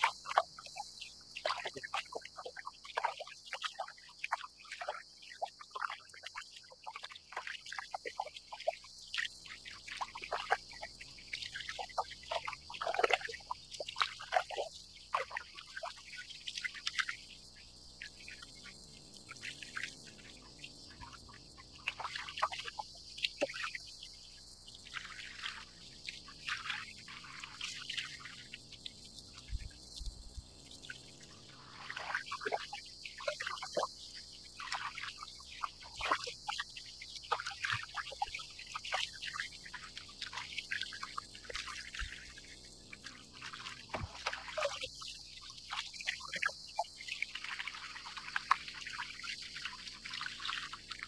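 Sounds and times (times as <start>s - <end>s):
waves slapping kayak hull: 43.4s - 44.8s.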